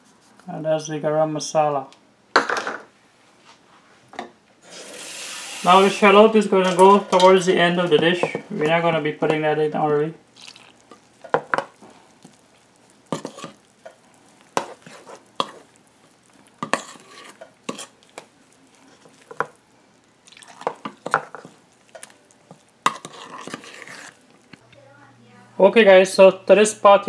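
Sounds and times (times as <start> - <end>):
metal spoon scraping a bowl: 13.1 - 13.6, 14.6 - 15.6, 16.6 - 18.0, 22.9 - 24.2.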